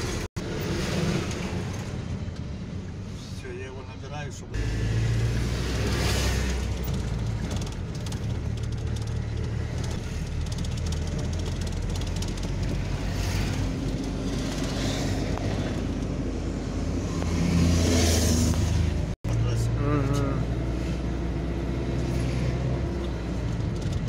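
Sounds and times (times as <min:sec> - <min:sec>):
car engine and tyres rumbling: 0:00.0 - 0:24.0.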